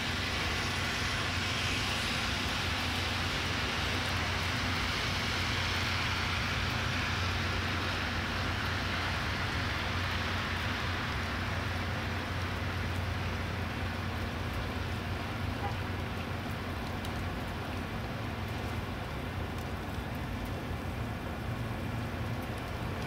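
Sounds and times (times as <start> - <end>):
low traffic hum: 0.0 - 23.0
tyres hissing on wet streets: 0.0 - 23.0.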